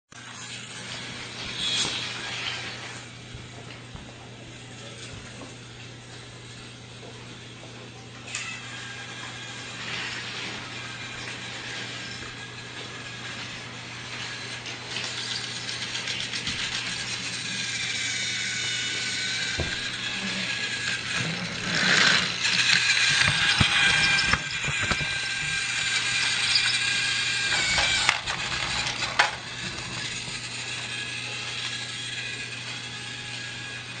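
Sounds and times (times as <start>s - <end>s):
small electric motor whining: 0.2s - 3.8s, 4.5s - 34.0s
toy train wheels clicking: 8.3s - 34.0s
loud clatter: 19.1s - 30.7s.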